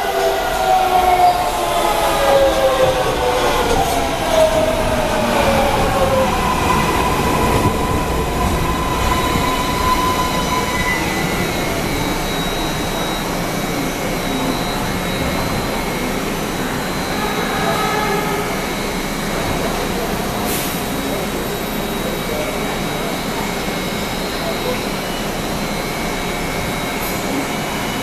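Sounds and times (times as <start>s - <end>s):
steady high tone: 0.0s - 19.2s.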